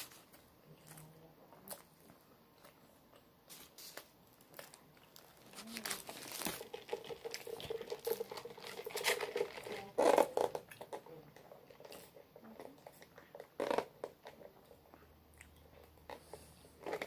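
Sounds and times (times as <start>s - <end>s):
food wrapper crinkling and tearing: 3.5s - 10.8s.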